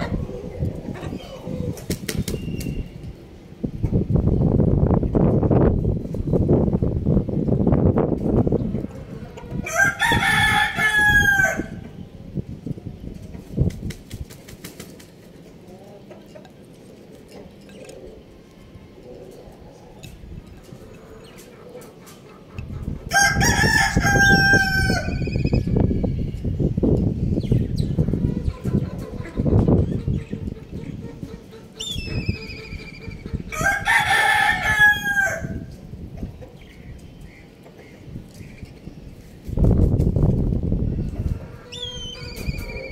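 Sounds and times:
rooster crowing: 9.6s - 11.8s, 23.1s - 25.3s, 33.5s - 35.6s.

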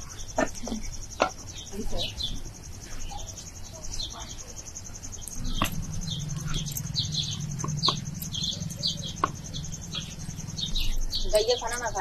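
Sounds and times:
insect trill: 0.0s - 12.0s
small birds chirping: 0.0s - 12.0s
low hum: 4.8s - 12.0s.

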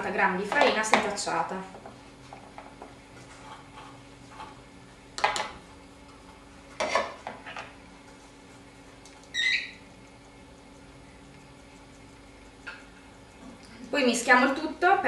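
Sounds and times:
high squeak of container: 9.3s - 9.8s.

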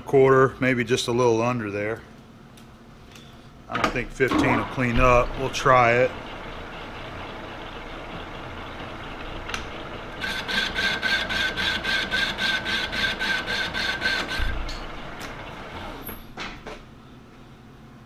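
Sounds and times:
lathe running: 4.7s - 16.1s
rhythmic scraping cut on cast iron: 10.2s - 14.5s.

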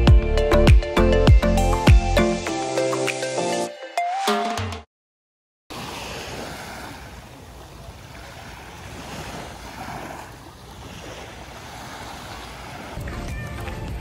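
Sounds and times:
small waves washing onto sand: 5.7s - 14.0s.

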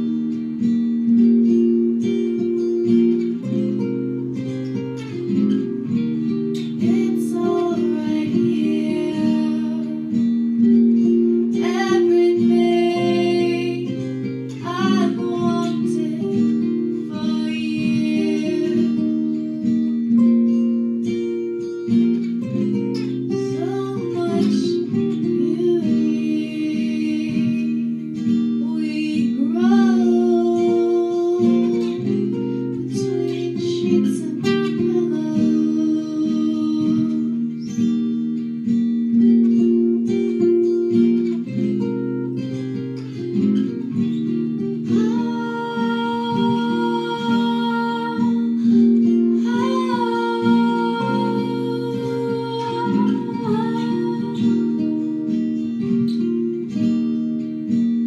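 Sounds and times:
strummed guitar chords: 0.0s - 58.0s
person singing into a microphone: 6.8s - 10.3s, 11.5s - 19.4s, 23.4s - 27.9s, 28.6s - 32.2s, 32.8s - 37.4s, 44.9s - 55.5s.

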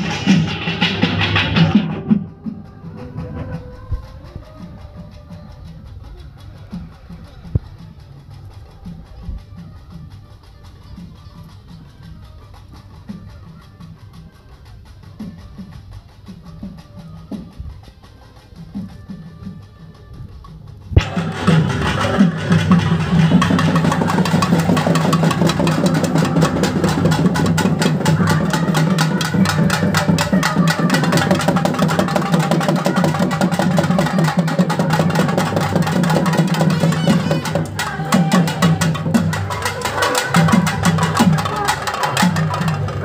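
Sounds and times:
steady pitched drone: 0.0s - 9.4s
fast traditional drumming: 0.0s - 43.0s.

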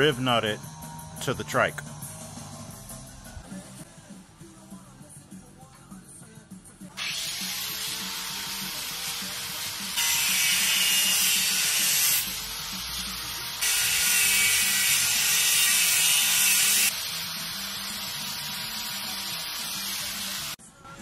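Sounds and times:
angle grinder cutting metal: 7.0s - 20.6s.

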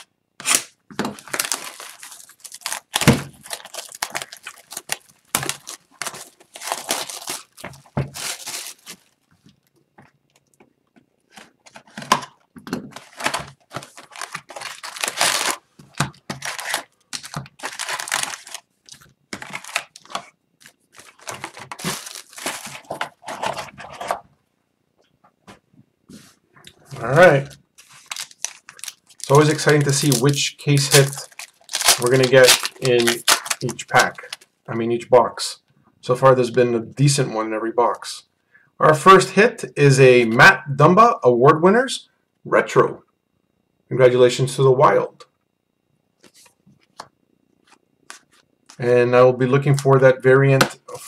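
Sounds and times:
knife slitting plastic wrap: 0.0s - 9.0s, 13.0s - 20.3s, 21.0s - 23.6s, 27.8s - 34.4s
plastic wrap tearing and crinkling: 0.0s - 9.3s, 11.3s - 24.2s, 26.9s - 34.5s.

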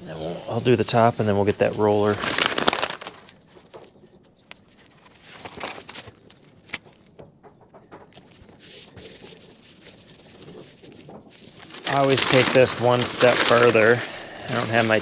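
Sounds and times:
tape rustling on plastic wrap: 0.5s - 3.8s, 4.6s - 6.9s, 8.2s - 15.0s.

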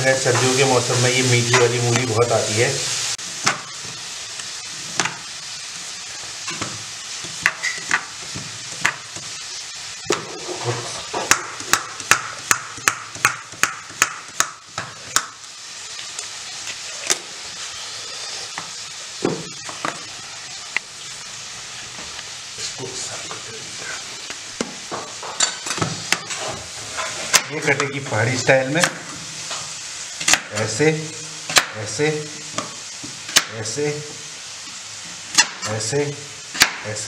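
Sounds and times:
frying sizzle: 0.0s - 37.0s.

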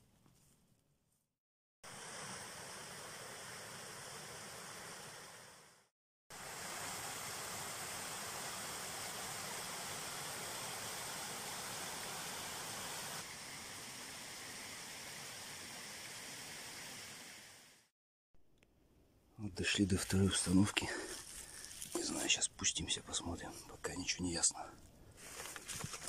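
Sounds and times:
water rushing over dam: 6.4s - 17.6s.

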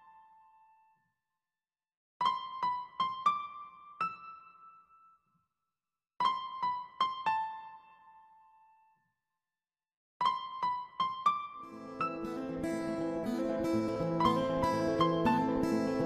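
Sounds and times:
piano-like keyboard notes: 10.2s - 16.0s.

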